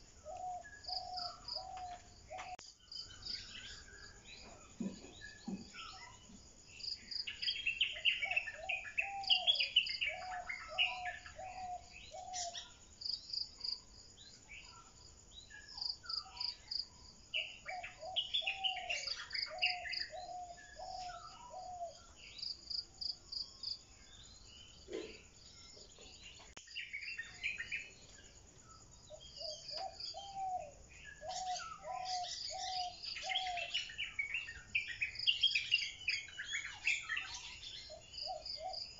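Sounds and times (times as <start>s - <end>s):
birds warbling: 7.2s - 12.8s, 17.4s - 22.2s, 29.2s - 38.9s
birds whistling: 7.3s - 12.7s, 17.4s - 22.2s, 29.2s - 38.9s.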